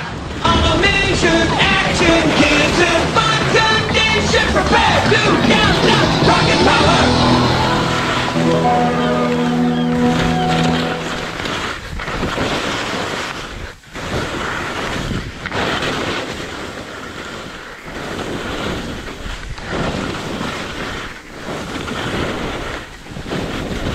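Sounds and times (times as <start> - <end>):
skis scraping over snow: 0.0 - 23.9
wind rushing on microphone: 11.2 - 23.9.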